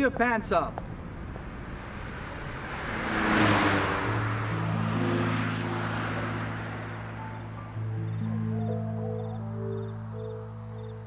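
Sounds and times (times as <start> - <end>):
car passing by: 0.9 - 9.0
crickets chirping: 3.1 - 11.0.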